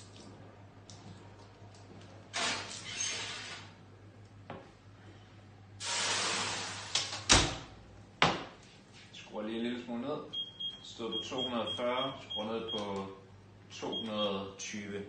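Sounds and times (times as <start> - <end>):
water hissing on hot tray: 5.8 - 7.0.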